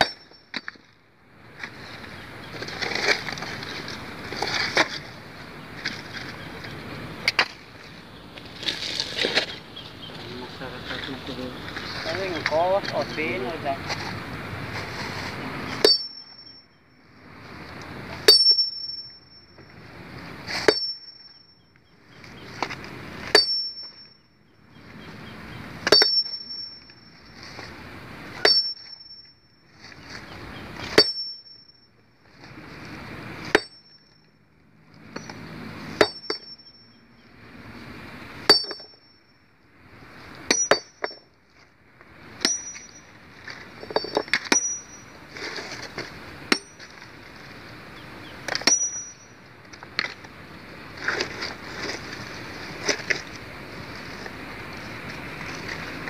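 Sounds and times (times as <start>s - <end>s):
sledgehammer striking steel chisel: 0.0s - 0.7s, 15.7s - 16.6s, 18.3s - 19.2s, 20.5s - 21.2s, 23.3s - 24.1s, 25.8s - 26.8s, 28.4s - 29.2s, 30.8s - 31.6s, 33.5s - 34.0s, 36.0s - 36.7s, 38.5s - 39.0s, 40.5s - 41.2s, 42.4s - 43.0s, 43.8s - 45.0s, 46.5s - 46.8s, 48.5s - 49.3s.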